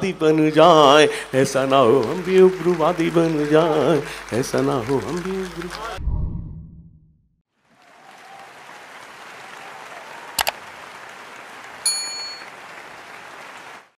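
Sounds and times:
applause-like noise: 0.0s - 6.0s, 7.6s - 14.0s
notification bell ding: 11.9s - 12.5s.

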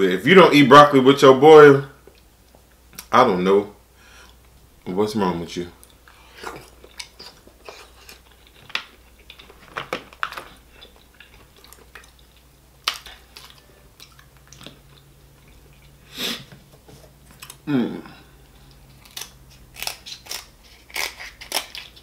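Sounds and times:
chewing and mouth sounds: 5.8s - 16.1s
crab shells cracking: 6.6s - 15.6s, 18.7s - 22.0s.

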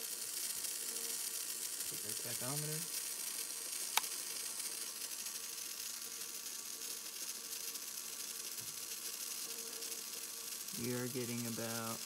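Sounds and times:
small motor gear whirring: 0.0s - 12.0s
sharp click: 3.9s - 4.1s.

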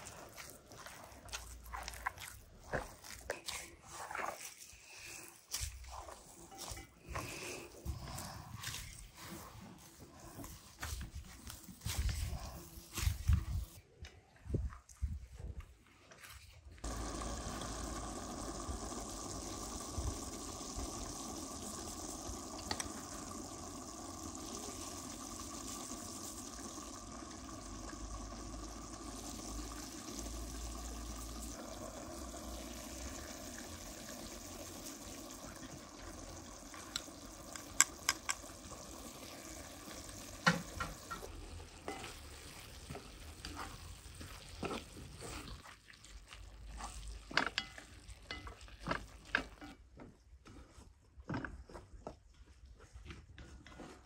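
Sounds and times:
minced meat sizzling: 0.0s - 13.8s, 16.8s - 49.8s.

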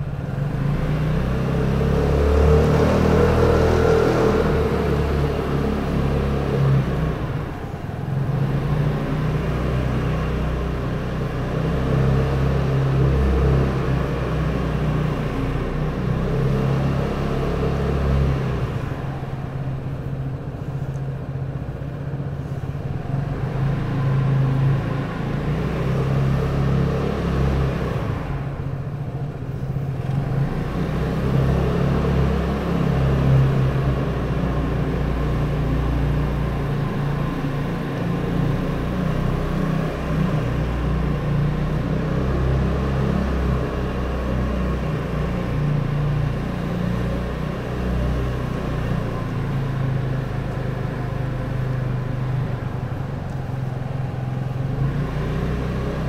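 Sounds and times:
scooter engine running: 17.7s - 56.0s.

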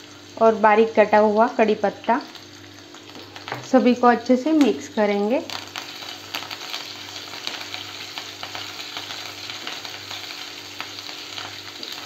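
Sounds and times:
hot oil sizzling: 0.0s - 12.0s
small crackling pops: 5.4s - 12.0s.

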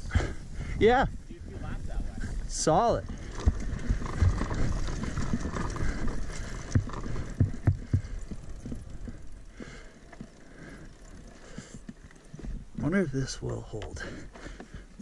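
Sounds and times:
dirt bike thudding over rough ground: 2.7s - 11.3s.

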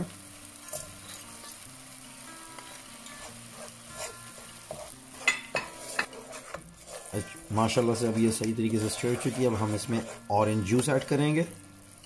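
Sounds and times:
light sizzle: 0.0s - 12.0s
spatula scraping frying pan: 2.6s - 11.3s.

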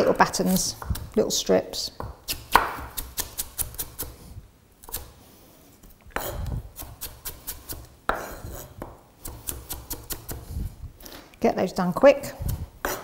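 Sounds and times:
knife chopping on wooden board: 2.0s - 4.1s, 6.2s - 10.4s, 12.4s - 13.0s.

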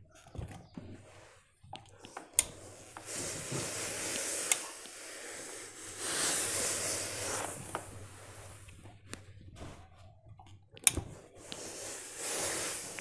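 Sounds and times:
steam iron hissing: 2.2s - 8.7s, 11.3s - 13.0s.

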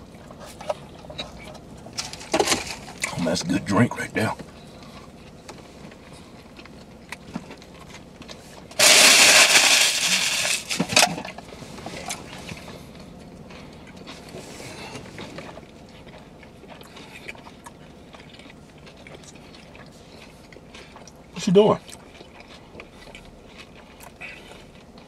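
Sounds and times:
chewing food: 4.4s - 9.1s, 11.2s - 25.0s
loud rustling and crackling: 8.8s - 11.2s.

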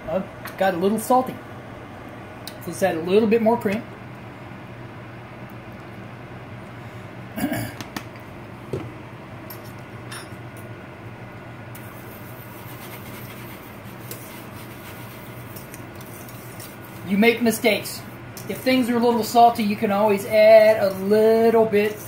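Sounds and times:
steady low hum: 0.0s - 22.0s
whisk scraping skillet: 11.8s - 22.0s.

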